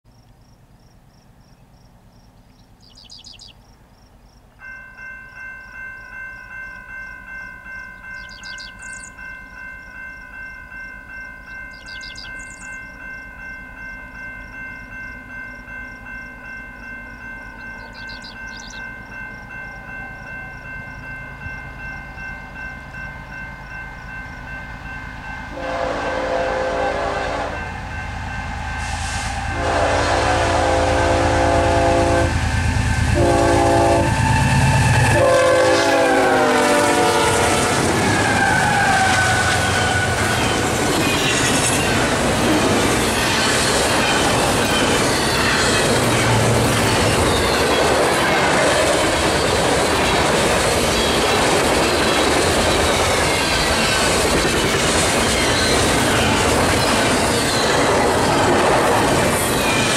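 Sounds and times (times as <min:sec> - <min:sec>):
train rumble: 0:04.8 - 0:59.9
locomotive air horn chord: 0:25.5 - 0:40.3.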